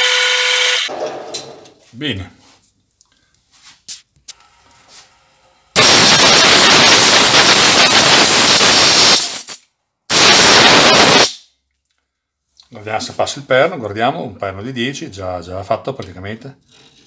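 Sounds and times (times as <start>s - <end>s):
compressed air blow gun hissing: 5.8s - 11.3s.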